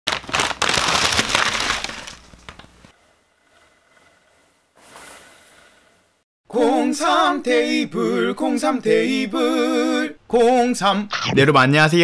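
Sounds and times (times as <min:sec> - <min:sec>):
crisp crackling and crunching: 0:00.1 - 0:02.9.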